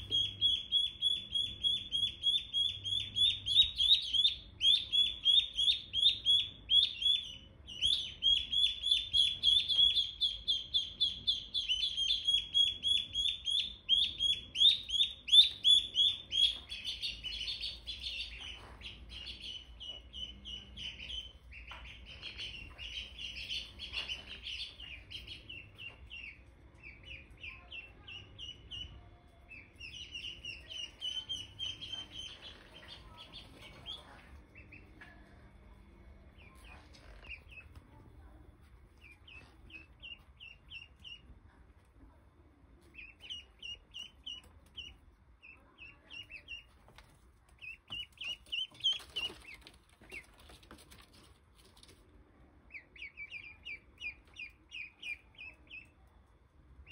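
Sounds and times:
ducklings peeping: 0.0s - 56.9s.

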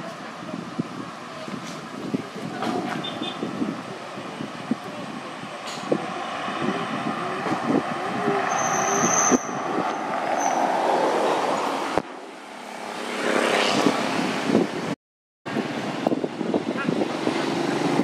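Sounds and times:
road traffic noise: 0.0s - 18.0s
vehicle passing: 5.8s - 14.7s.

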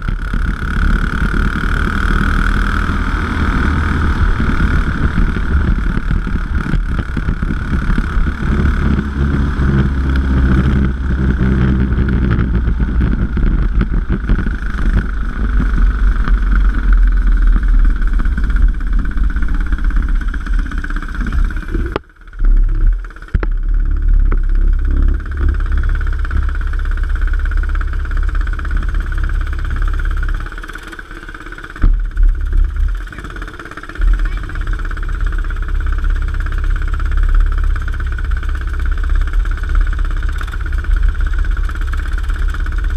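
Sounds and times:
racing kart engine running: 0.0s - 42.9s
loud bumps: 31.6s - 33.3s.

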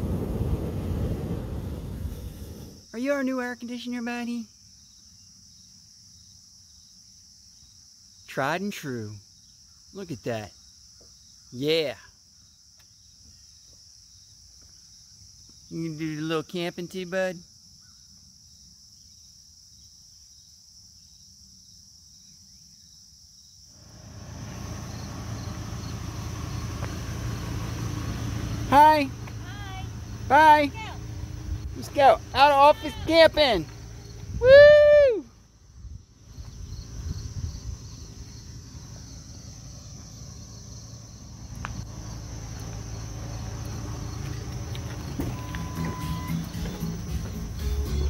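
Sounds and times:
low rumble of noise: 0.0s - 2.9s, 23.8s - 47.5s
crickets trilling: 0.0s - 48.0s
insects chirring: 0.8s - 48.0s.

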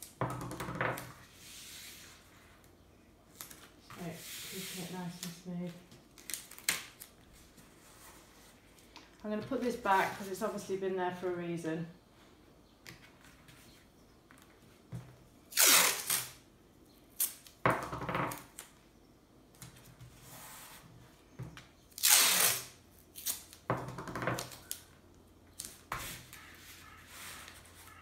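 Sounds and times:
masking tape tearing off roll: 6.2s - 7.1s, 15.5s - 16.4s, 17.1s - 17.6s, 21.9s - 23.7s.

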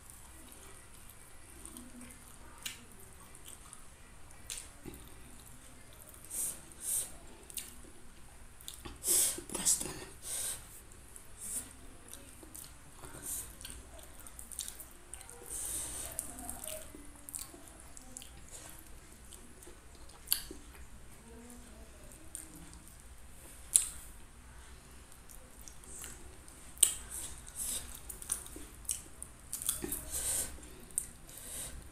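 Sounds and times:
wet chewing and mouth smacks: 0.1s - 6.4s, 7.5s - 7.9s, 8.6s - 10.0s, 12.1s - 20.9s, 22.2s - 24.2s, 25.1s - 31.2s.

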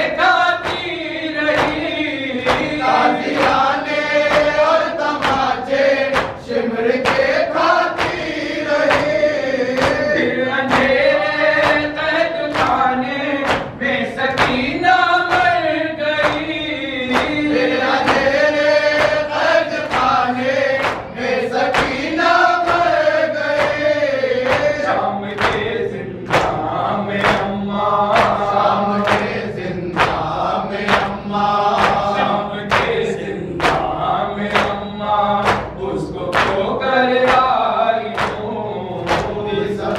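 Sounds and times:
hands beating chests: 0.0s - 15.6s, 16.2s - 27.5s, 28.1s - 34.8s
men chanting together: 0.0s - 39.9s.

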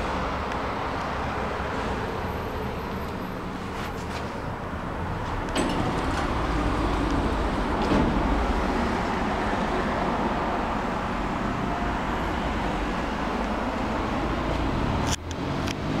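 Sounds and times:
lift doors closing with thud: 5.2s - 9.0s.

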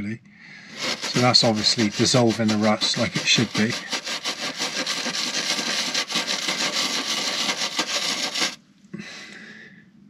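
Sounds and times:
wire brush scrubbing metal: 0.7s - 8.6s.

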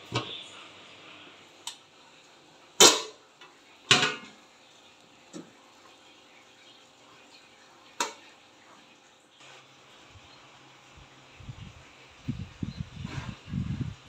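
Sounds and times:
metal lid clanking: 2.8s - 3.2s, 3.9s - 4.3s.

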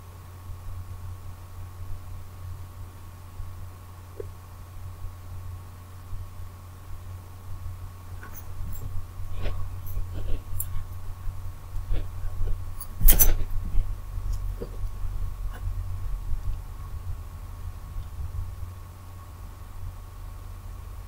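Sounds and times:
low electrical hum: 0.0s - 21.0s.

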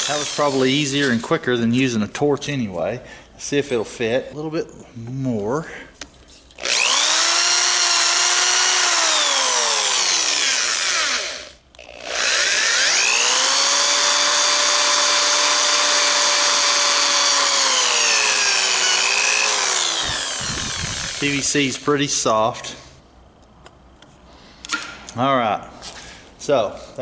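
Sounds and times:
drill bit cutting plastic: 0.0s - 0.6s, 6.6s - 21.7s
power drill motor whine: 6.6s - 21.5s.

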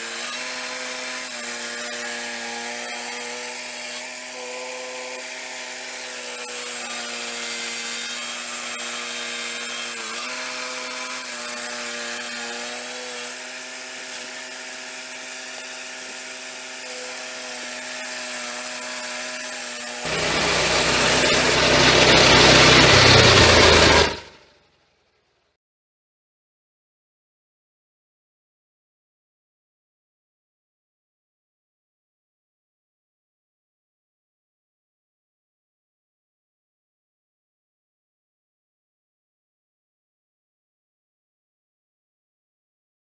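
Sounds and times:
sawmill blade sawing log: 0.0s - 24.4s.

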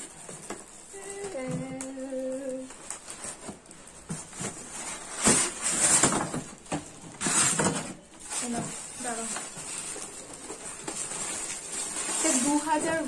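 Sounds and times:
plastic wrapping crinkling: 0.0s - 13.0s
person humming: 0.9s - 2.7s.

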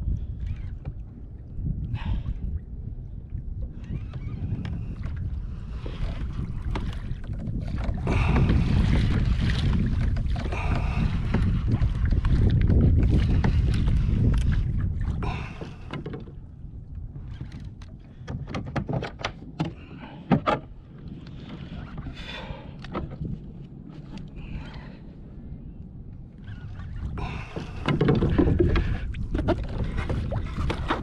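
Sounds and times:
wind buffeting microphone: 0.0s - 31.0s
kayak rushing through water: 4.4s - 16.4s, 26.4s - 31.0s.

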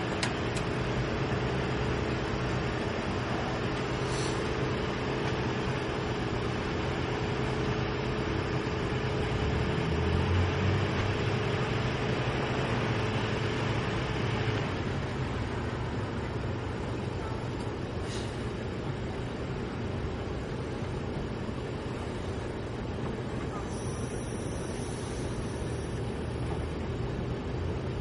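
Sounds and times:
machine running at idle: 0.0s - 28.0s
hum: 18.6s - 28.0s.

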